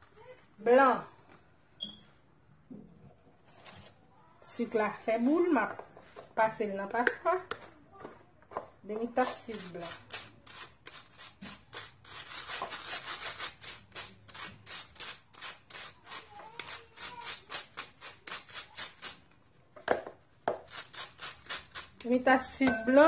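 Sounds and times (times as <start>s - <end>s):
sugar scraped through sieve: 9.1s - 19.3s, 20.6s - 23.0s.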